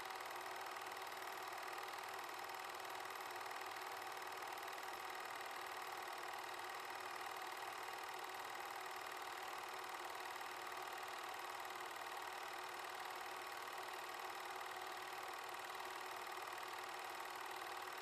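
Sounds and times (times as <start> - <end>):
film projector clattering: 0.0 - 18.0.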